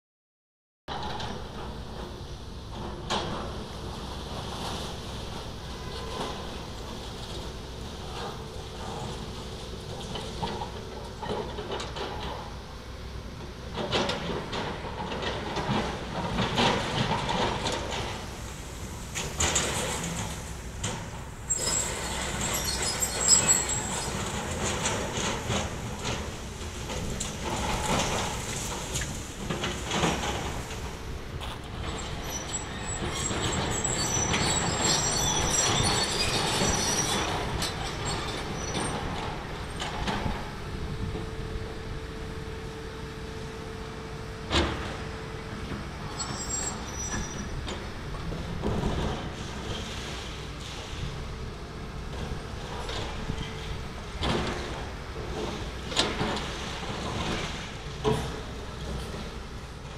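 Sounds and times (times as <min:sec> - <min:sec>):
excavator machine noise: 0:00.9 - 0:59.9
high metallic squeals: 0:21.4 - 0:24.6, 0:31.9 - 0:38.9, 0:46.1 - 0:47.5.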